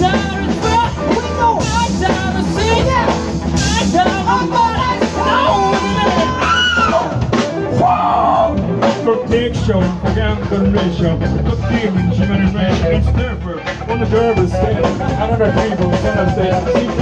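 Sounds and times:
saxophone and trumpet horns: 0.0s - 9.6s
drum kit beat: 0.0s - 17.0s
live band playing upbeat music: 0.0s - 17.0s.

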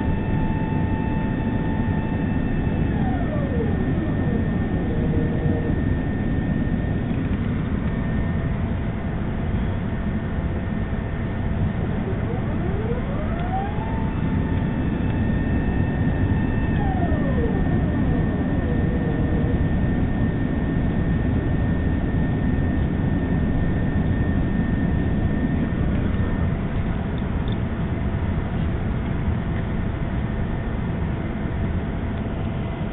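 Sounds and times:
rising whine: 0.0s - 27.6s
jet engines and airflow rushing: 0.0s - 28.3s
faint high tone: 11.8s - 19.7s.

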